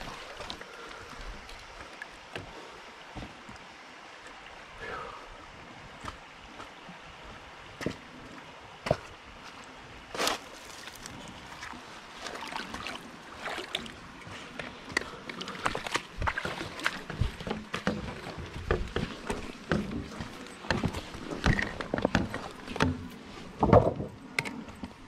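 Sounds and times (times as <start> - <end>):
splashes from wading: 0.0 - 1.1, 8.8 - 20.2
creek flowing: 0.0 - 25.0.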